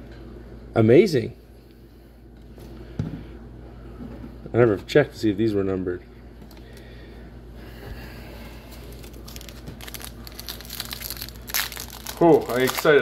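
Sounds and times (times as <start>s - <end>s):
foil wrapper crinkling: 8.7s - 13.0s.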